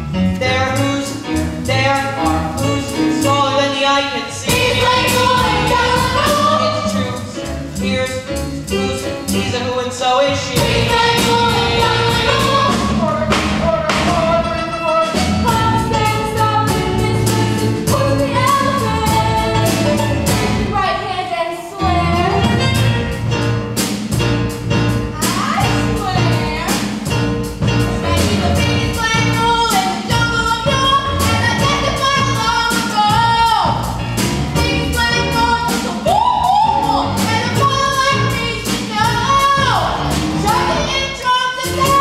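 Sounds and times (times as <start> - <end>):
instrumental accompaniment: 0.0 - 42.0
group singing show tune: 0.4 - 23.2, 27.8 - 33.8.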